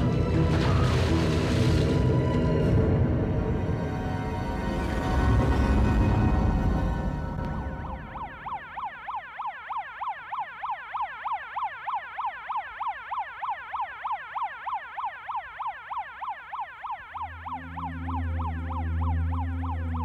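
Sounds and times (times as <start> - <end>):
police siren yelping: 7.7 - 20.0.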